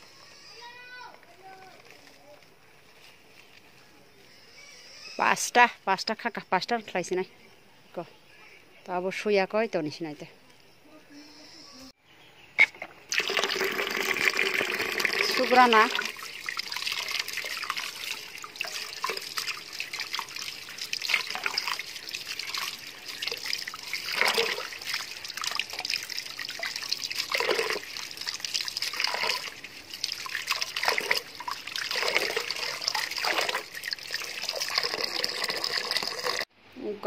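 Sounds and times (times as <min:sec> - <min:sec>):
water sloshing in metal pot: 0:13.1 - 0:36.5.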